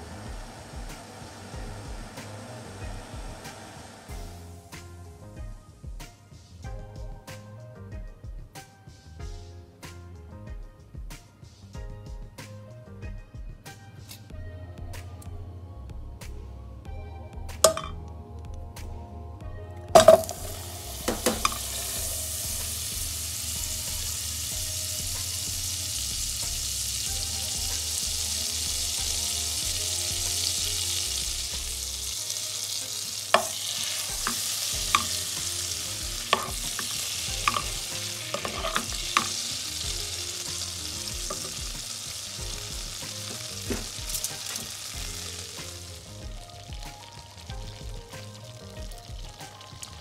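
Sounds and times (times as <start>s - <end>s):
butter sizzling in a pan: 0.0s - 4.7s, 20.0s - 50.0s.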